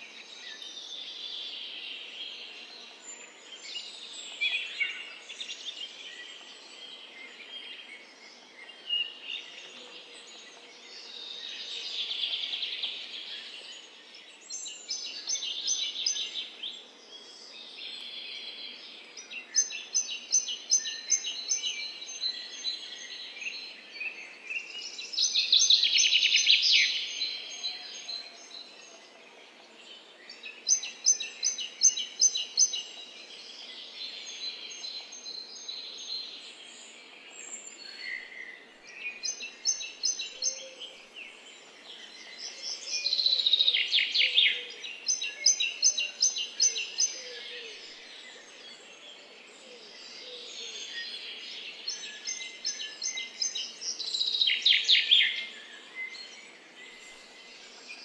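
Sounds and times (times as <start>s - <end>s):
songbirds calling and singing: 0.0s - 58.0s.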